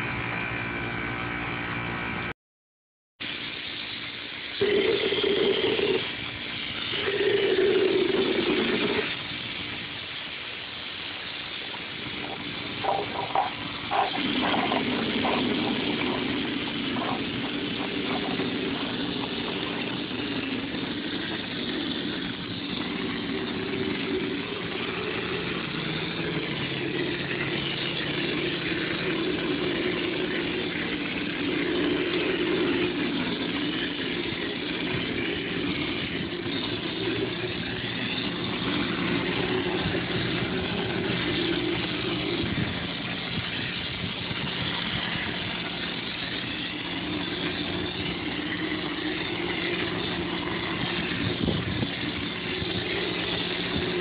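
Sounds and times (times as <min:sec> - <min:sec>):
compressed air hissing: 0:03.2 - 0:54.0
motor hum: 0:03.2 - 0:54.0.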